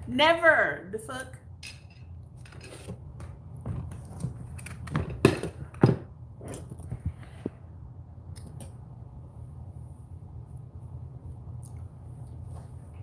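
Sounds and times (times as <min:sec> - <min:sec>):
objects knocking and scraping: 0:01.6 - 0:07.1.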